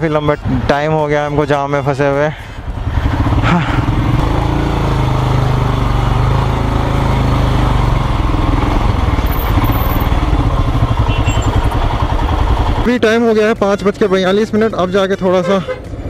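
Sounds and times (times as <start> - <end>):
motorcycle engine running at low revs: 2.4 - 15.0.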